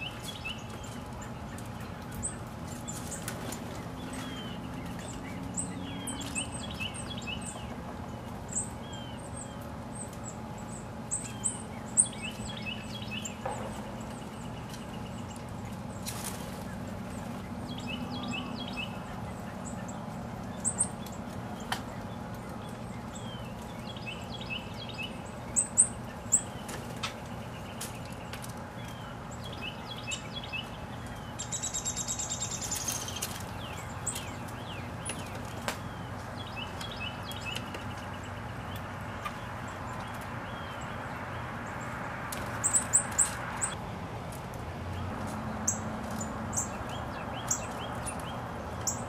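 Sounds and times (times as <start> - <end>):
songbird trilling: 8.5 - 15.4
bird rustling dry leaf litter: 14.4 - 24.4, 30.8 - 38.6.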